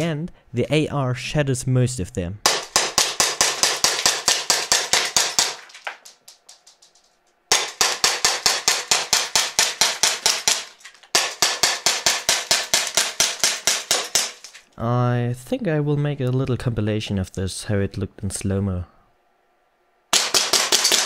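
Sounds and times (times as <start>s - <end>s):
pellets striking discs: 2.4s - 14.7s, 20.1s - 21.0s
airsoft gun firing full-auto: 20.1s - 21.0s.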